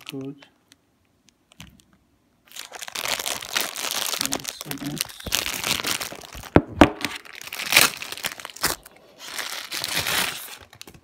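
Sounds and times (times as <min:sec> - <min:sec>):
plastic packaging crinkling: 0:01.5 - 0:11.0.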